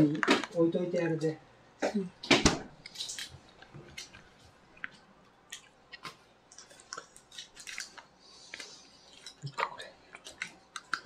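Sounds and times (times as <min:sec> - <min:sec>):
soft eating sounds: 0:02.8 - 0:11.0.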